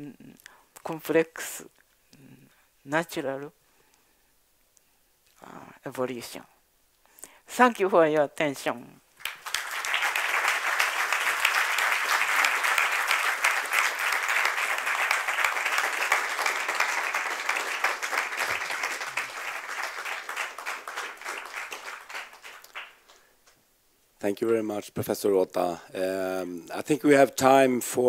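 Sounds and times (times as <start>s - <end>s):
audience applauding: 9.2s - 23.2s.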